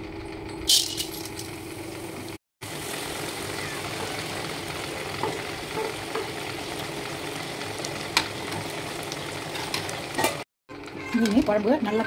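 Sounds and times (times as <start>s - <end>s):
curry boiling and bubbling: 2.2s - 10.4s.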